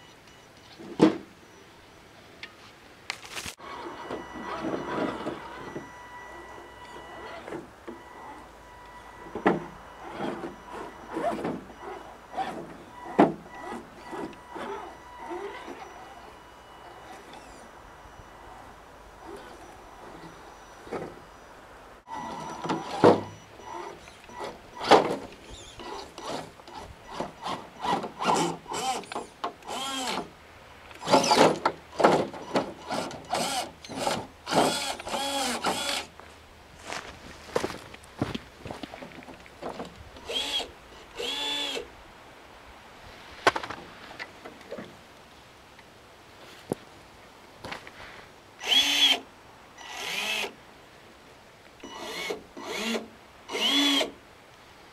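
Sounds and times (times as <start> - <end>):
electric motor whining: 3.6 - 21.0.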